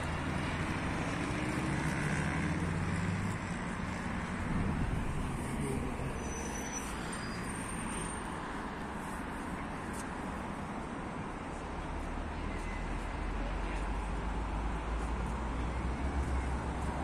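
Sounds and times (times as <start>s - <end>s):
road traffic noise: 0.0s - 17.0s.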